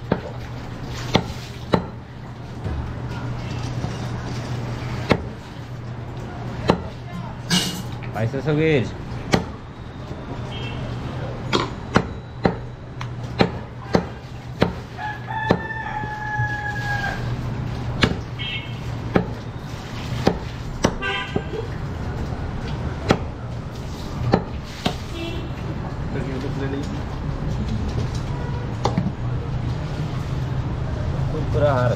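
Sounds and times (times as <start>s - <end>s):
knife chopping meat on wood: 1.1s - 2.0s, 5.0s - 5.3s, 9.3s - 9.6s, 11.6s - 12.7s, 13.3s - 14.8s, 15.4s - 15.8s, 18.0s - 18.2s, 19.1s - 19.4s, 20.2s - 21.5s, 23.0s - 23.3s
rooster crowing: 14.9s - 17.4s.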